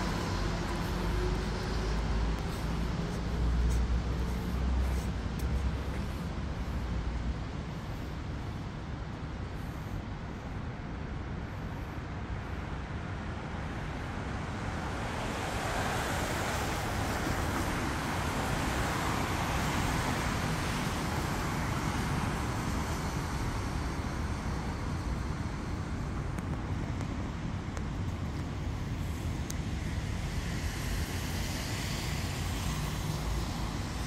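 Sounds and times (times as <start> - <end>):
vehicle passing: 0.0 - 5.1
city road traffic rumble: 0.0 - 34.0.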